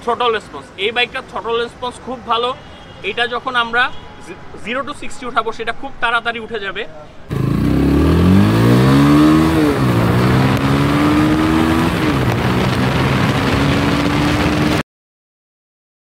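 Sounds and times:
engine accelerating through gears: 0:07.3 - 0:14.8
wind rushing over microphone: 0:07.3 - 0:14.8.

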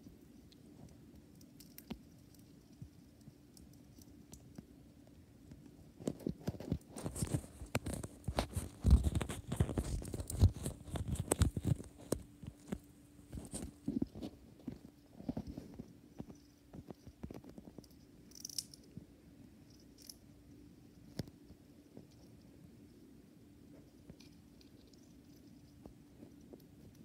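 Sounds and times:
hamster nibbling: 0:00.2 - 0:18.8.

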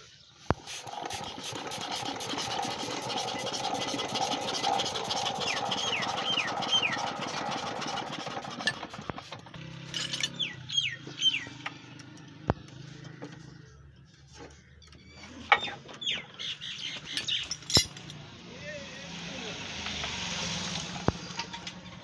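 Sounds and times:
engine running: 0:00.5 - 0:16.2, 0:16.8 - 0:22.0
bird whistling call: 0:05.4 - 0:07.0, 0:10.4 - 0:11.6.

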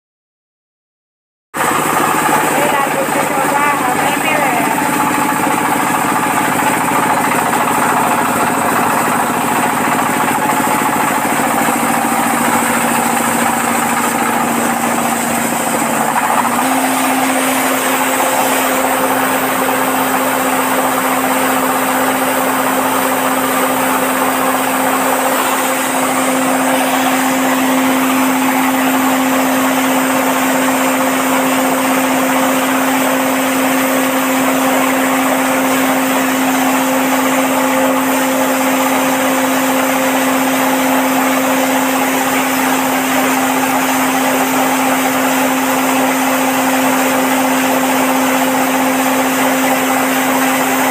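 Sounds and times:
diesel engine running: 0:01.6 - 0:50.9
hammer mill grinding corn: 0:01.6 - 0:50.9.

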